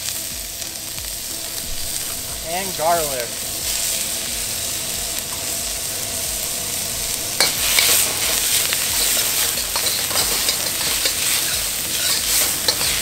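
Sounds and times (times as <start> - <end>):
food sizzling in oil: 0.0 - 13.0
metal spatula scraping a wok: 1.3 - 13.0.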